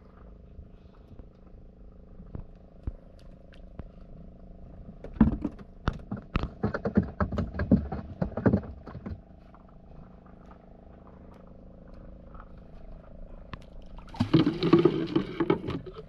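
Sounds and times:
loud irregular knocks and rustles: 5.0 - 9.2, 14.2 - 16.0.

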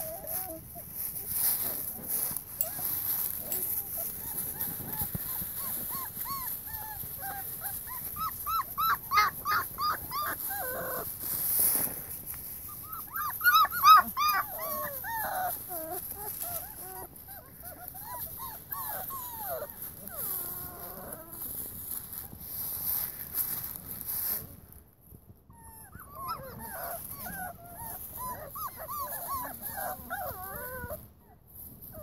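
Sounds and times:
puppies yipping and whining: 0.0 - 23.0, 25.5 - 32.0.

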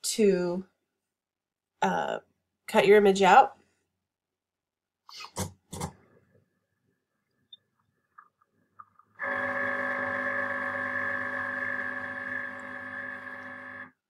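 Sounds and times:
cutting machine motor hum: 9.2 - 13.9.

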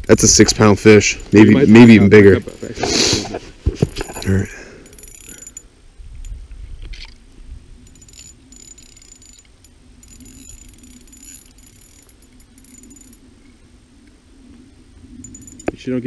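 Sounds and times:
fishing reel clicking and whirring: 4.8 - 6.4, 7.8 - 13.2, 15.2 - 15.7
wind rumble on microphone: 5.9 - 8.5.

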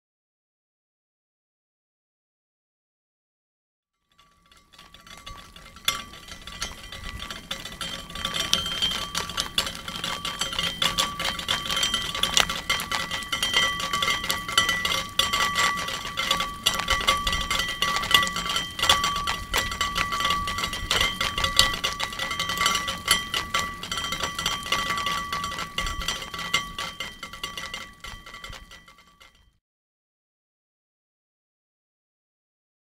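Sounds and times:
steady ringing tones: 4.1 - 29.6
water crackling with tiny pops: 4.6 - 28.7.

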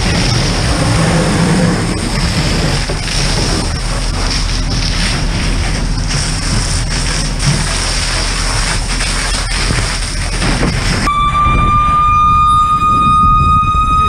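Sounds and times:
hose nozzle spraying water: 0.0 - 11.1
high whistle rising in pitch: 11.1 - 14.0.

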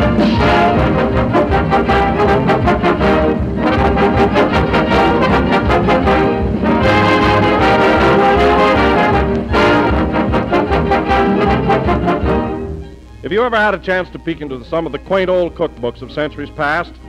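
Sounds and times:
dance orchestra with brass: 0.0 - 13.4.

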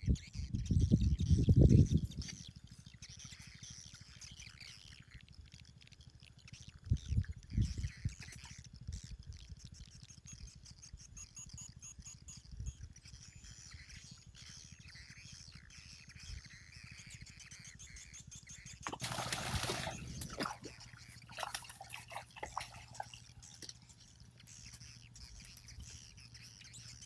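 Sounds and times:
small birds chirping: 0.0 - 27.0
fish splashing in water: 18.8 - 23.8.

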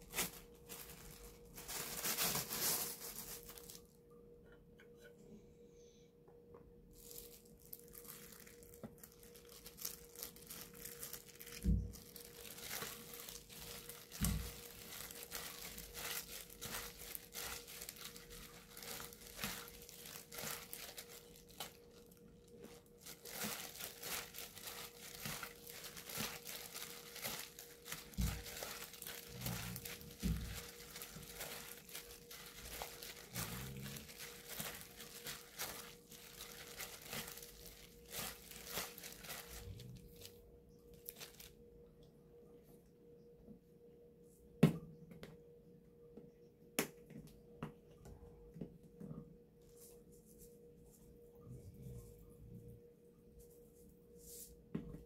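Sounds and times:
plastic glove crinkling: 0.0 - 4.0, 6.9 - 41.6
faint steady hum: 0.0 - 55.0.

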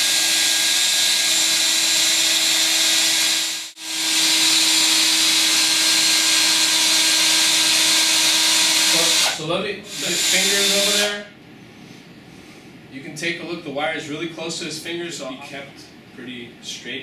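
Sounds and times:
electric drill motor whine: 0.0 - 11.2.

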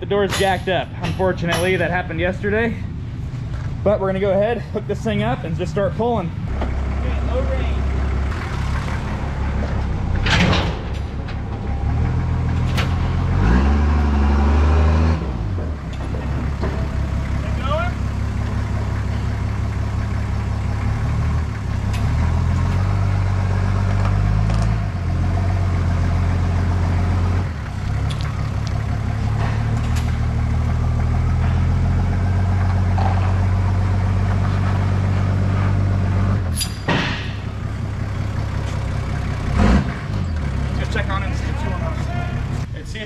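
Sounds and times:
truck engine running: 0.0 - 43.0
sharp metallic clank: 0.2 - 2.0, 36.5 - 37.6.

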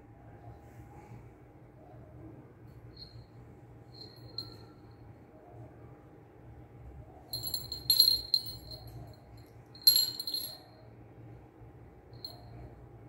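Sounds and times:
small bell jingling: 4.0 - 4.7, 7.3 - 9.2, 9.8 - 10.8, 12.2 - 12.5.

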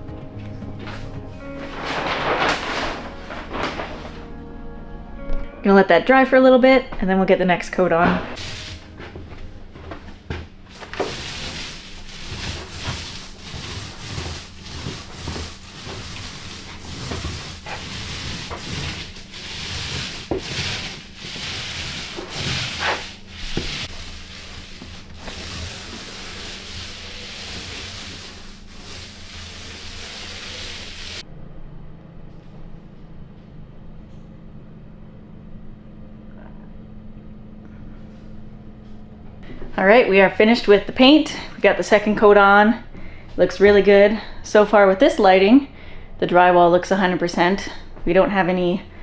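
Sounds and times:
steady low hum: 0.3 - 29.6, 31.2 - 49.0
paint roller rasping strokes: 8.4 - 9.3, 10.7 - 31.2.

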